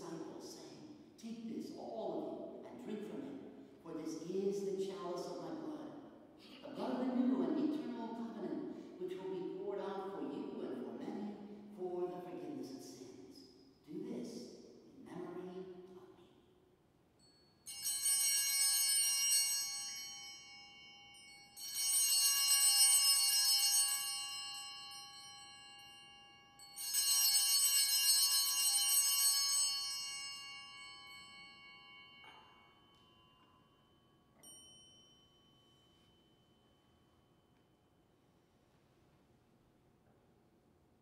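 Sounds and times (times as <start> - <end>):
altar bells ringing: 17.2 - 38.0.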